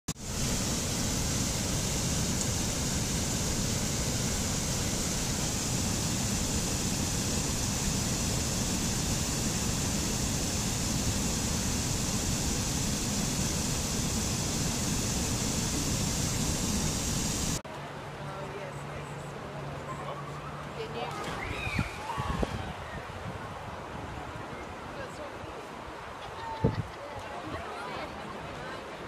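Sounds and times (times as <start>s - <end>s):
stream rushing over rocks: 0.1s - 17.6s.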